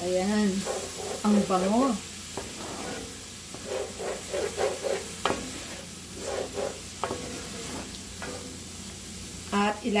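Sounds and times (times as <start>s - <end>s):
wooden spatula scraping a pan: 0.0s - 8.7s
food sizzling in a pan: 0.0s - 10.0s.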